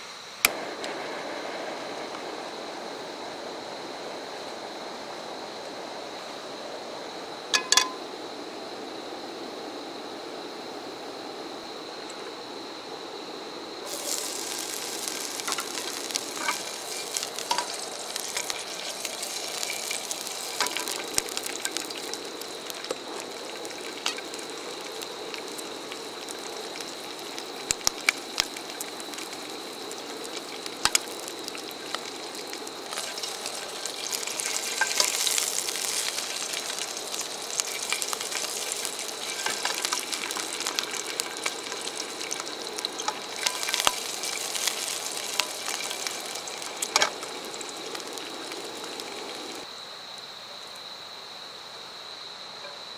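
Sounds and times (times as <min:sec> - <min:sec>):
sausages sizzling in a frying pan: 0:00.0 - 0:49.8
sharp clicks and pops: 0:30.3 - 0:48.2.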